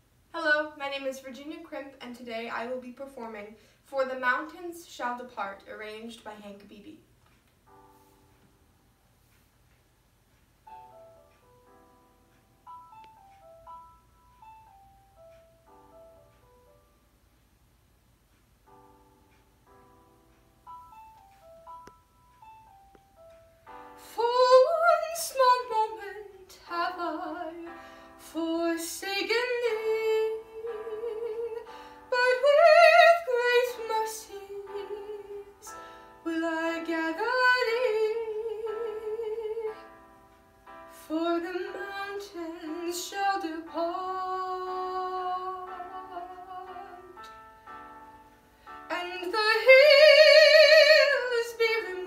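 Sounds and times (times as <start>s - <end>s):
piano accompaniment: 5.2s - 17.5s, 18.4s - 52.0s
woman singing classical song: 24.0s - 39.9s, 40.9s - 47.3s, 48.9s - 52.0s.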